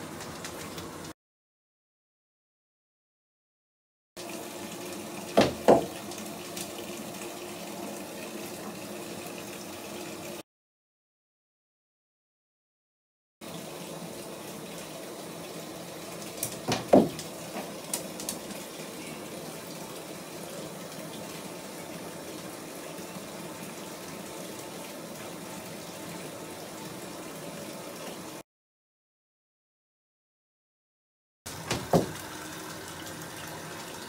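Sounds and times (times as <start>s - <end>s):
water running into bathtub: 0.0s - 1.2s, 4.2s - 10.4s, 13.4s - 28.4s, 31.5s - 34.0s
knocks: 5.4s - 6.0s, 16.7s - 17.2s, 31.7s - 32.2s.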